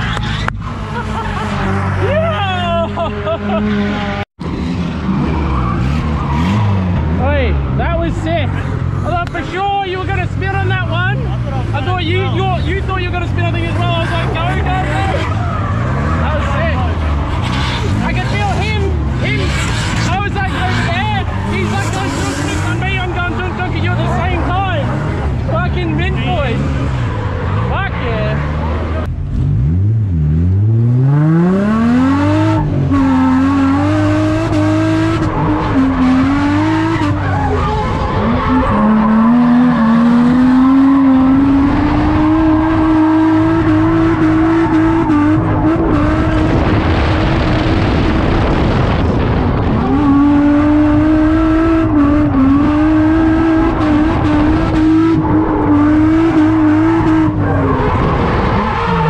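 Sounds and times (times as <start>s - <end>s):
tyre squeal: 0.0s - 2.3s, 32.9s - 46.1s
car engine revving: 0.0s - 59.0s.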